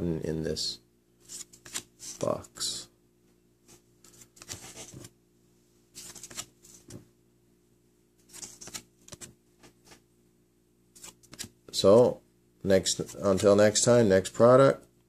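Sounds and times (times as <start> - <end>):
trading cards rustling and clicking: 1.2 - 2.4, 4.0 - 5.1, 6.0 - 7.0, 8.2 - 10.0, 11.0 - 11.6.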